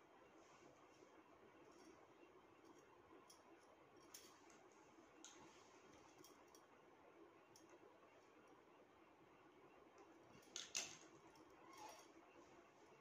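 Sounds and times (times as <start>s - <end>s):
small clicks of beads and metal: 2.6s - 4.6s, 10.0s - 12.1s.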